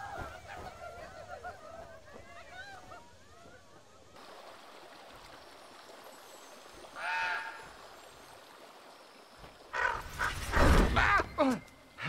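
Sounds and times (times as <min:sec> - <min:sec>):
stream and small waterfall rushing: 0:04.2 - 0:10.6.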